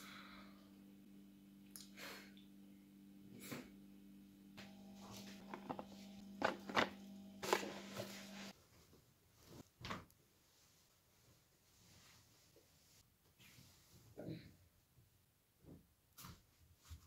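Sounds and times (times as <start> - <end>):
steady low hum: 0.0 - 8.5.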